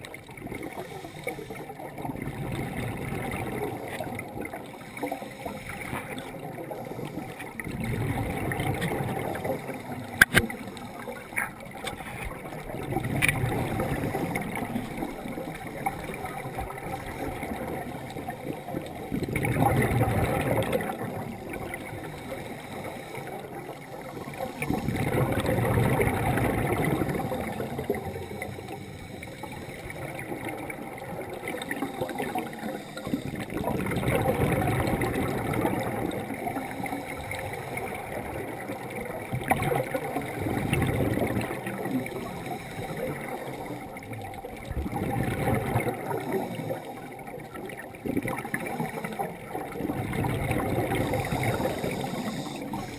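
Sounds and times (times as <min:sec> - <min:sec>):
underwater exhaled air gurgling: 0:00.0 - 0:52.9
sharp clicks: 0:10.2 - 0:10.5.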